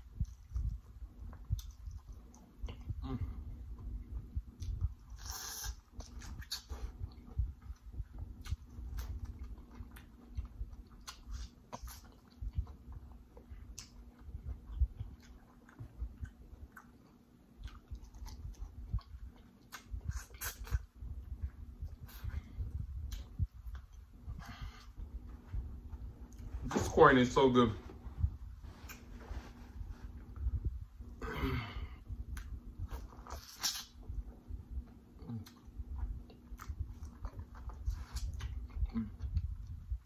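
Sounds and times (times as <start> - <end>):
faint steady hum: 0.0 - 40.0
wet mouth clicks: 33.4 - 34.0.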